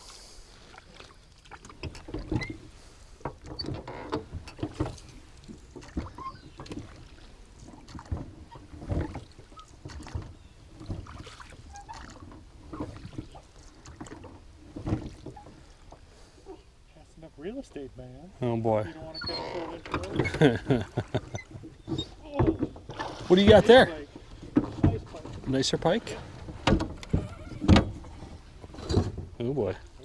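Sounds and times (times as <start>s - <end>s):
water sloshing: 0.0s - 30.0s
paddle knocking on metal hull: 19.6s - 25.5s, 26.2s - 29.5s.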